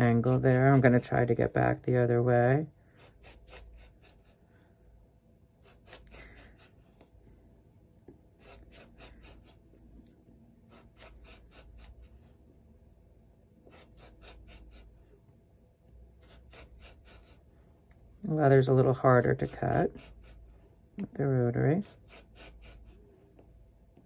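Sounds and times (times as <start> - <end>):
rotary cutter rasping through leather: 0.0 - 1.1, 3.0 - 4.4, 5.6 - 6.8, 8.3 - 9.6, 10.7 - 12.2, 13.7 - 14.9, 16.2 - 17.4, 19.2 - 20.4, 21.8 - 23.0.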